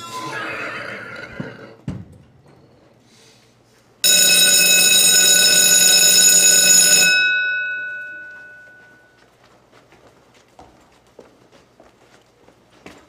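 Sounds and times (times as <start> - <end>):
electric school bell ringing: 4.0 - 9.2.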